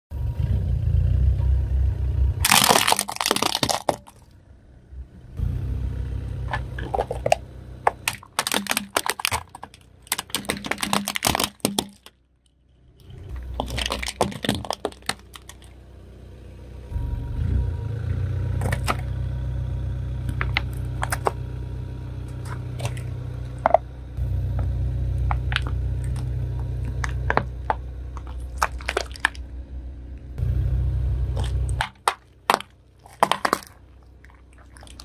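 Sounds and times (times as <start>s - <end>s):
car rumble: 0.1s - 35.0s
plastic toys cracking: 2.4s - 4.3s, 6.5s - 12.2s, 13.4s - 15.8s, 18.6s - 19.1s, 20.3s - 21.4s, 25.3s - 29.5s, 31.4s - 35.0s.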